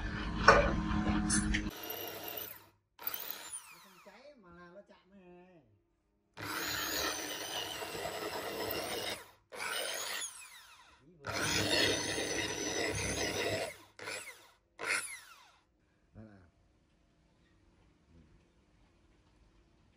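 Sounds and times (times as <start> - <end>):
electric drill boring into wood: 1.7 - 4.2, 6.4 - 15.6.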